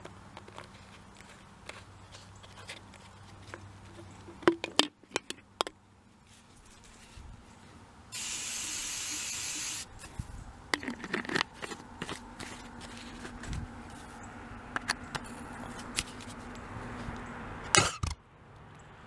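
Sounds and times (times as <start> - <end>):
aerosol spray hissing: 8.2 - 9.9.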